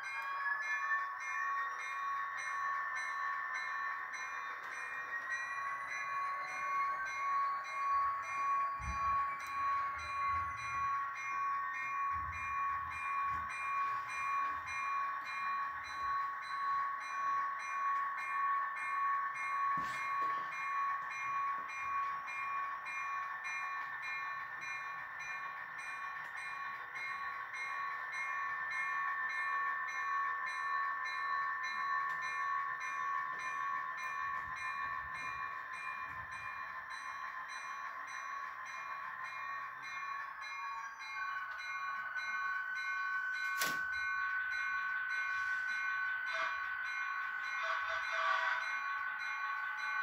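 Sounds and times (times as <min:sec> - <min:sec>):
model steam locomotive whine: 0:00.0 - 0:50.0.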